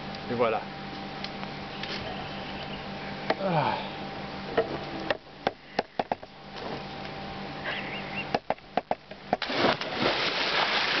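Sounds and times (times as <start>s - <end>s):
bird chirp: 1.7s - 3.3s, 7.6s - 8.4s
person splashing into pool: 9.4s - 11.0s
water rushing and churning: 9.4s - 11.0s.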